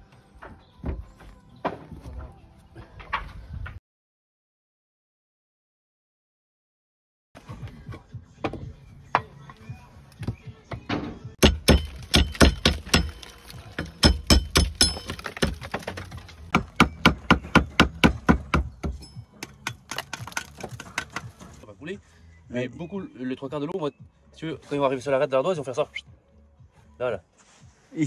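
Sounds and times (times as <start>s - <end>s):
hammer striking slate: 11.4s - 21.3s.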